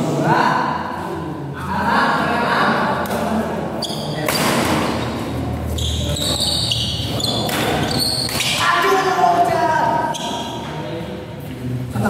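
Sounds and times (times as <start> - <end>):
shoes squealing on court floor: 3.8 - 9.2, 9.9 - 10.8
rackets smacking shuttlecock: 7.4 - 8.6.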